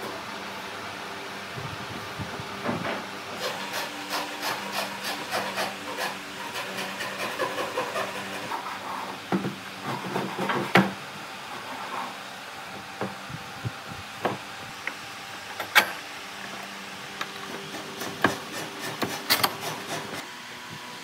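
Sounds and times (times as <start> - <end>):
wood knocking and scraping on wood: 8.3 - 11.0, 14.2 - 14.4, 16.5 - 20.2.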